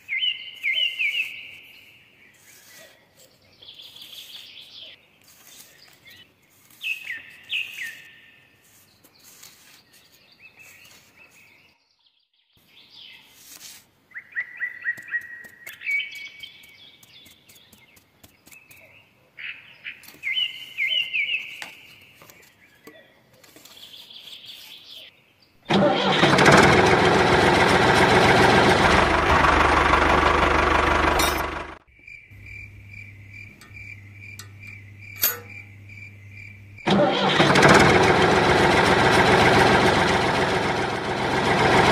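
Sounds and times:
birds chirping: 0.0s - 13.3s, 14.1s - 25.7s, 31.2s - 36.9s
loud engine: 25.7s - 41.9s
low hum: 26.2s - 41.9s.

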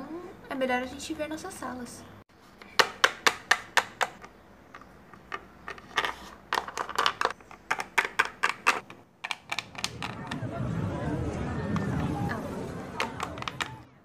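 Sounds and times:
plastic toys tapping on tabletop: 2.6s - 10.2s, 13.0s - 13.8s.

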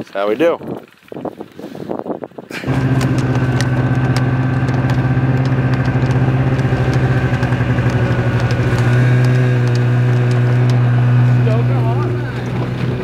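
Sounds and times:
motor running steadily: 2.6s - 13.0s.

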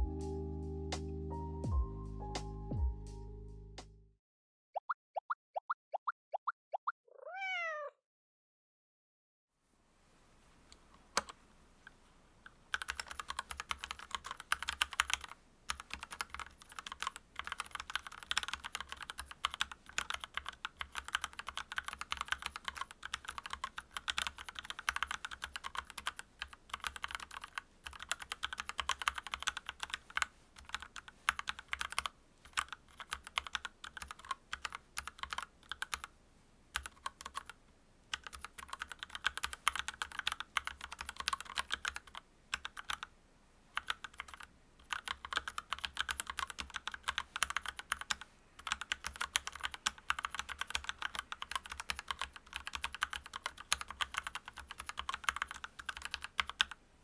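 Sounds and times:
mechanical keyboard typing: 11.2s - 11.4s, 12.7s - 36.1s, 36.7s - 43.1s, 43.8s - 56.8s.

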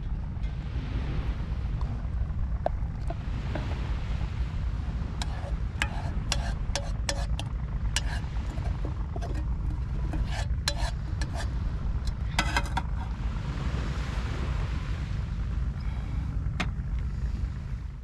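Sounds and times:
wind on microphone: 0.0s - 18.0s
utensil scraping metal pot: 5.2s - 13.2s.

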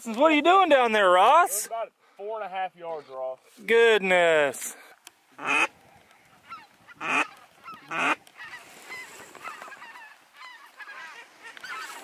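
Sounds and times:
flock of geese calling: 5.3s - 12.0s
loud goose honks: 5.4s - 5.7s, 6.4s - 12.0s.

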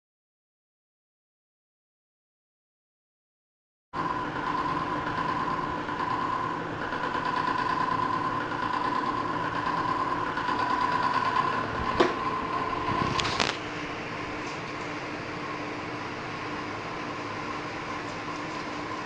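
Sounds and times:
small electric motor whining: 4.0s - 14.8s.

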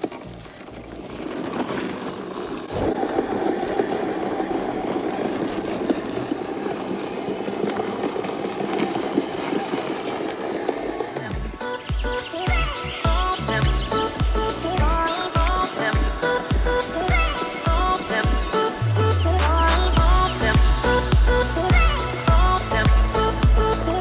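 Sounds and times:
rc car motor whirring: 1.1s - 18.8s
music: 11.2s - 24.0s.

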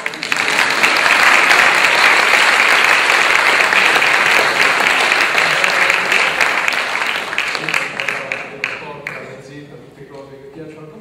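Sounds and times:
audience applauding: 0.0s - 9.3s.

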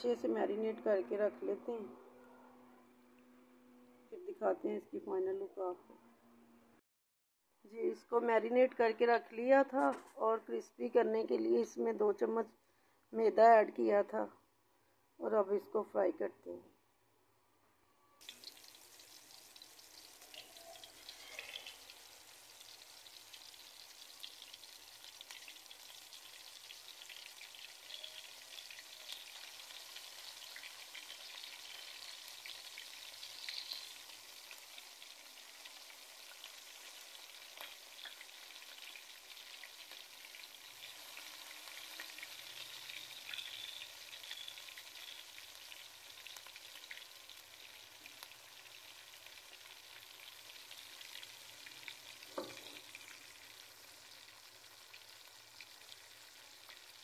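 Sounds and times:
chicken deep-frying in oil: 18.2s - 57.0s.

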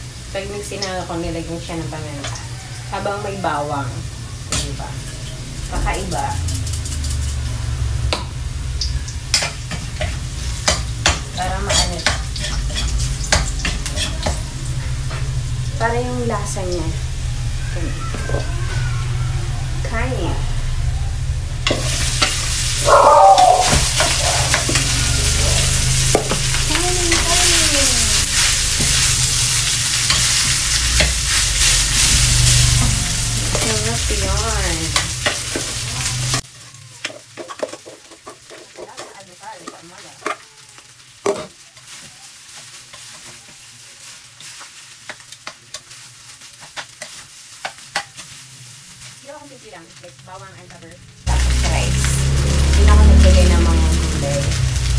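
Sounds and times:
rice sizzling in frying pan: 0.0s - 54.9s
metal spatula scraping pan: 9.3s - 15.3s.

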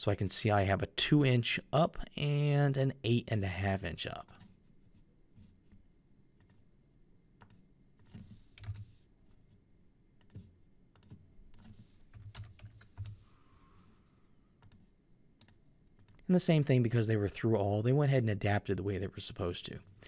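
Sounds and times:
keyboard typing: 7.4s - 9.0s, 10.2s - 13.4s, 14.6s - 16.2s.

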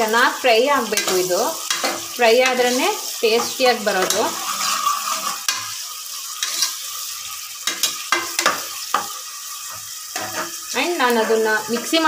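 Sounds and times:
onions sizzling in hot oil: 0.0s - 12.0s
metal ladle scraping pot: 3.4s - 5.8s, 9.7s - 12.0s.

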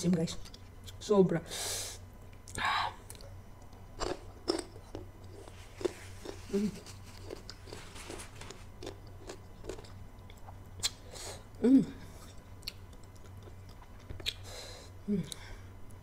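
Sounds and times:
crunchy fruit being chewed: 2.2s - 14.5s.

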